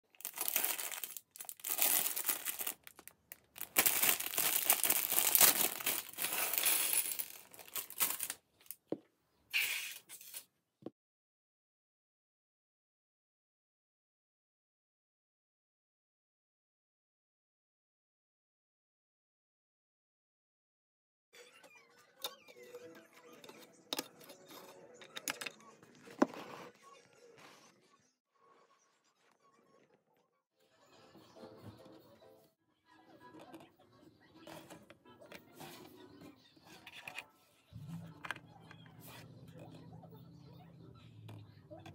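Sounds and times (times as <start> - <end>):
plastic bag crinkling and tearing: 0.0 - 8.8
plastic pieces clicking: 0.2 - 8.4.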